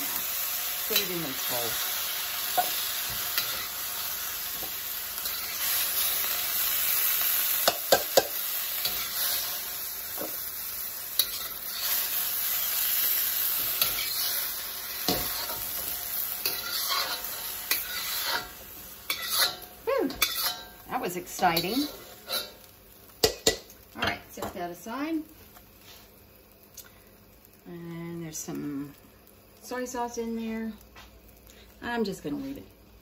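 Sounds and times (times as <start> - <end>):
broccoli sizzling in a wok: 0.0 - 33.0
metal spatula scraping a wok: 5.2 - 6.2, 7.6 - 10.3, 11.2 - 12.2, 13.5 - 20.8, 21.6 - 22.7.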